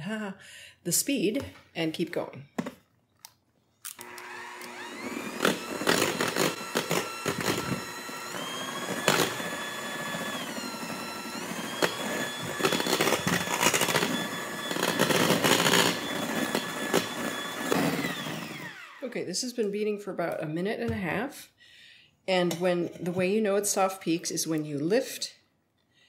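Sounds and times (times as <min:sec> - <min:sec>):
electric hand mixer whining: 0:03.9 - 0:19.1.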